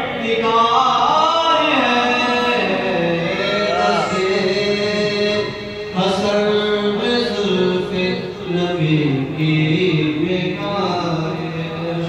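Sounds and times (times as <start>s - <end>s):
man chanting devotional poem: 0.0s - 12.0s.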